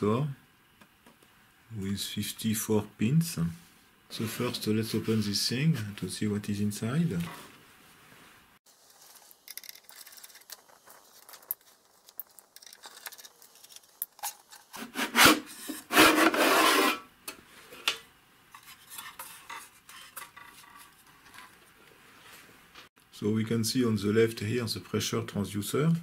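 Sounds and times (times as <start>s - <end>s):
metal cover scraping: 12.6s - 18.0s.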